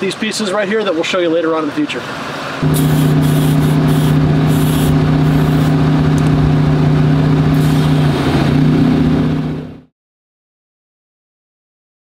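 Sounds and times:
air compressor humming: 2.6 - 9.2.

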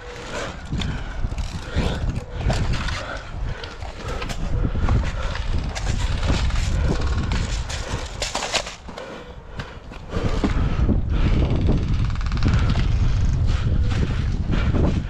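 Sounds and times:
wind on microphone: 0.0 - 8.4, 10.0 - 15.0
clicks and rustling: 0.0 - 10.6.

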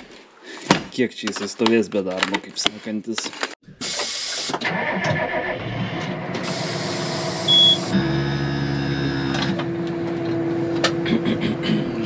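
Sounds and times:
high beep: 7.5 - 7.8.

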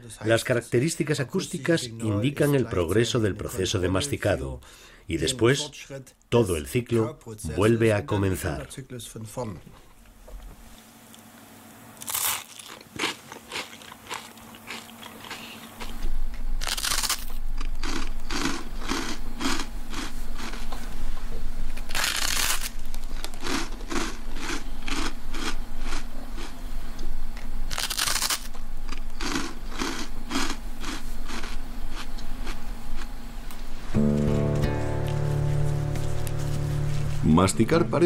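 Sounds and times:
low steady hum: 0.0 - 38.0
toast crunching when bitten: 12.0 - 16.0, 16.6 - 20.7, 21.8 - 26.6, 27.7 - 33.1.

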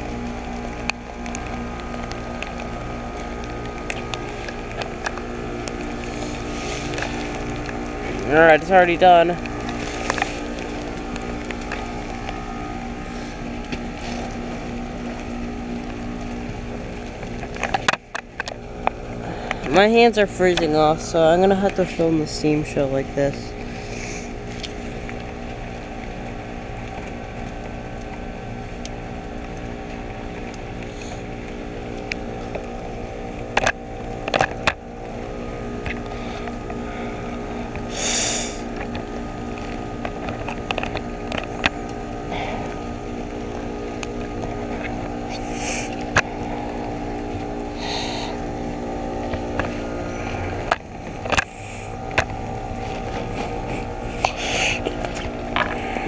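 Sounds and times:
heat pump fan humming: 0.0 - 56.0
short hissing bursts: 37.9 - 38.7.

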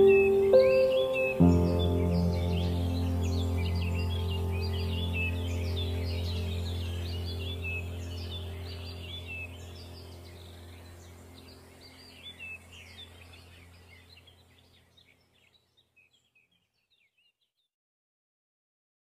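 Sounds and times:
low steady drone: 0.0 - 14.4
birds chirping: 0.0 - 17.6.

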